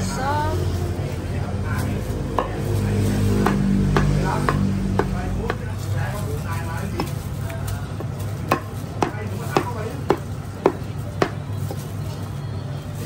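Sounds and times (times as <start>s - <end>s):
cleaver chopping on wooden block: 3.4s - 5.7s, 8.0s - 11.4s.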